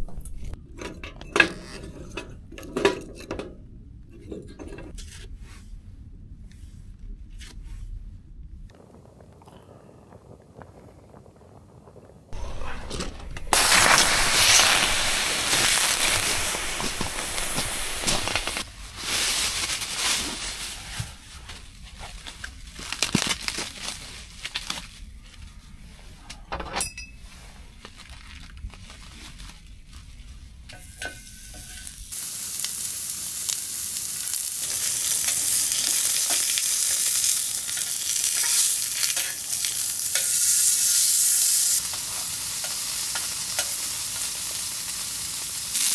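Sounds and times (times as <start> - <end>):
meat sizzling on a grill: 12.4 - 20.5, 30.8 - 45.9
loud hissing rush: 12.4 - 20.9.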